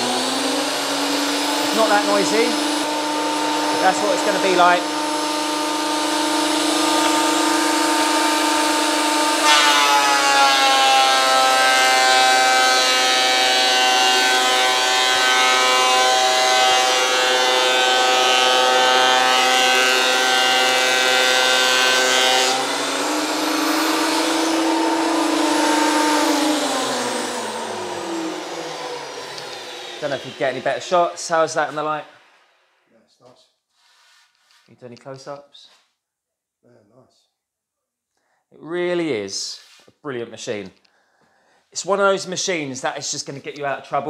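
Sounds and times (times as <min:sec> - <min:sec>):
board being planed: 0:00.0 - 0:31.9
thicknesser motor whining: 0:00.0 - 0:32.4.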